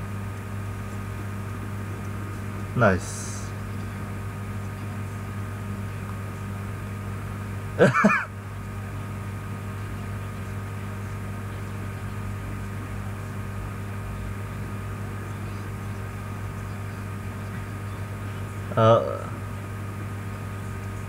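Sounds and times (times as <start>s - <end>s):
low electrical hum: 0.0s - 21.0s
man laughing: 7.8s - 8.3s.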